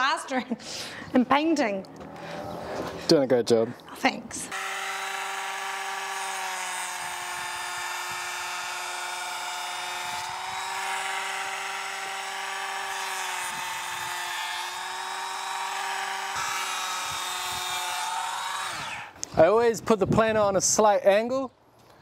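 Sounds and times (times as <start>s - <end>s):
power planer whining: 4.5s - 19.2s.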